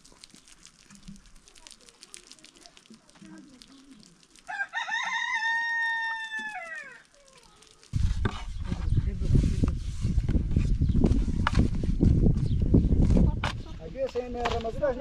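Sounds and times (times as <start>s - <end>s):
rooster crowing: 4.5s - 7.0s.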